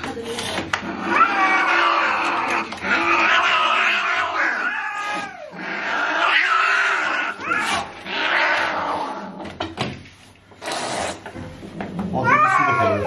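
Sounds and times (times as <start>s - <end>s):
cat yowling and growling: 0.9s - 9.3s, 12.2s - 13.0s.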